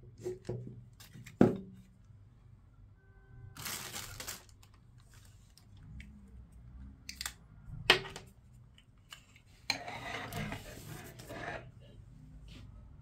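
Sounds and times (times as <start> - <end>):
plastic bag crinkling: 3.6 - 5.5.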